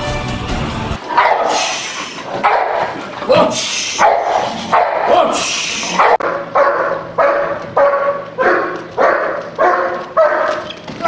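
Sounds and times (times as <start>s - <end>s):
dog barking: 1.1s - 10.7s
loud hissing rush of noise: 1.4s - 2.4s, 3.5s - 6.2s.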